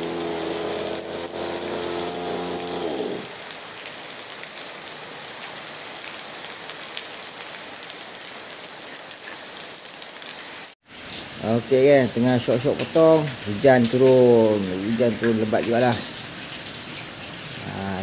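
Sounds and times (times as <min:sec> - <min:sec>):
brush cutter engine winding down: 0:00.0 - 0:03.3
heavy rain falling: 0:00.0 - 0:18.0.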